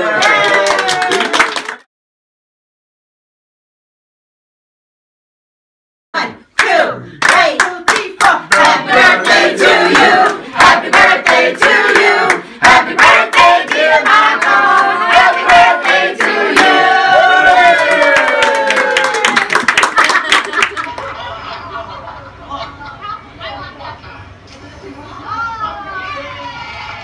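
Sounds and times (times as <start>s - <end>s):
people cheering: 0.0s - 1.8s, 14.6s - 21.7s, 25.2s - 27.0s
hand-clapping: 0.2s - 1.8s, 6.6s - 8.8s, 17.6s - 21.1s
group singing a celebration song: 6.2s - 18.0s.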